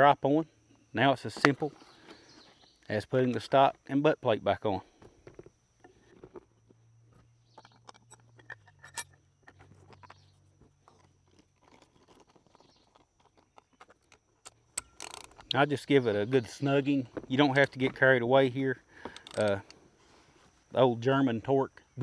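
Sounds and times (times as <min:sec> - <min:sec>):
gun parts clicking and knocking: 0:07.5 - 0:10.2, 0:10.9 - 0:15.6, 0:19.0 - 0:19.8.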